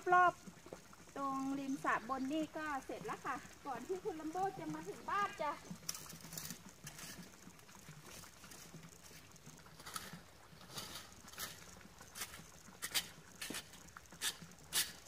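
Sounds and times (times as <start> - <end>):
rake scraping through leaves: 5.9 - 7.3, 9.7 - 15.0.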